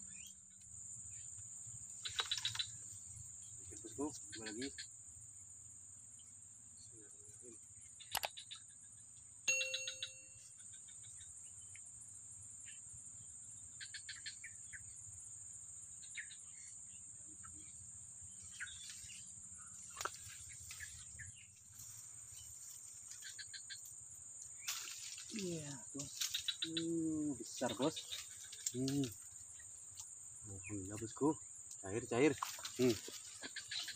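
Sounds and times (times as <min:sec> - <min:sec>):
insects droning: 0:00.0 - 0:33.9
rapid clicking chirps: 0:02.0 - 0:02.8, 0:08.0 - 0:08.8.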